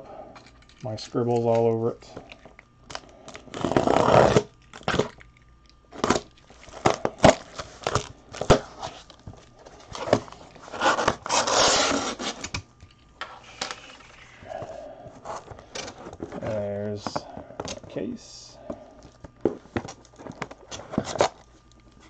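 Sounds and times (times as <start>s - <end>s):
packing tape tearing: 2.9s - 5.2s, 5.9s - 9.2s, 9.8s - 12.6s, 19.8s - 21.5s
cardboard flaps scraping: 9.9s - 12.5s
tearing rasp: 10.7s - 12.5s.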